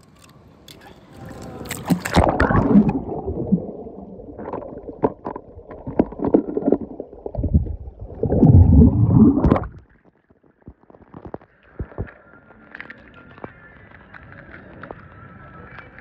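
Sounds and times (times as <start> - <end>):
water sloshing and gurgling: 0.2 - 12.0.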